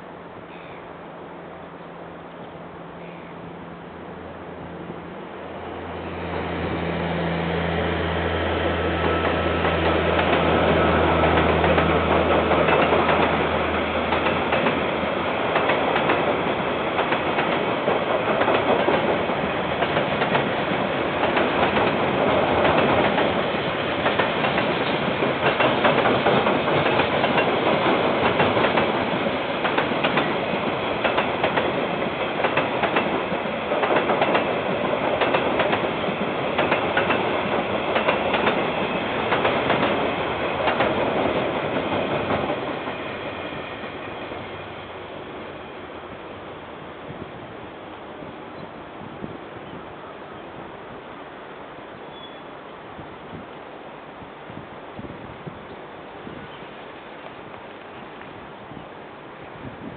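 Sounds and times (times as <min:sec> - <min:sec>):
diesel locomotive engine hum: 0:00.0 - 0:59.9
train wheels clattering over rails: 0:08.8 - 0:44.1.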